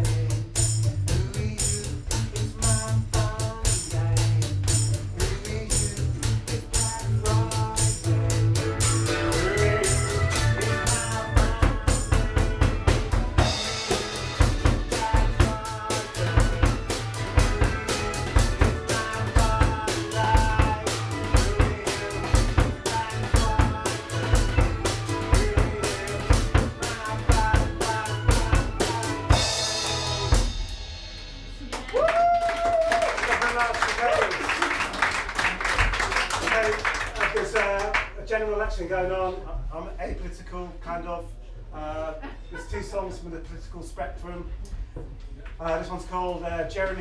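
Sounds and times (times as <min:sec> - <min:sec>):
live band playing: 0:00.0 - 0:32.4
keyboard music: 0:08.4 - 0:31.0
cymbal crash: 0:29.4 - 0:31.7.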